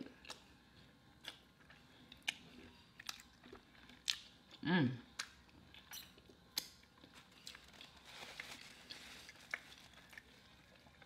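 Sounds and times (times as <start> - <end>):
paper napkin rustling: 7.6 - 10.0.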